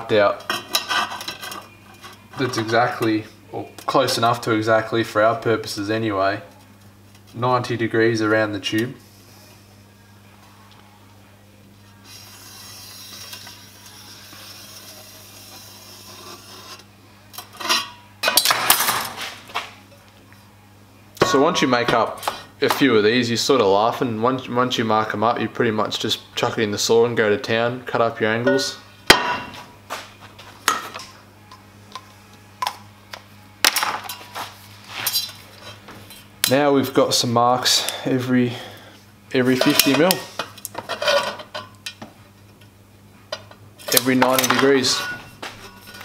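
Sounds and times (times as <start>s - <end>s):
faint steady hum: 0.0s - 46.0s
steel rule scraping metal pipe: 12.0s - 16.8s.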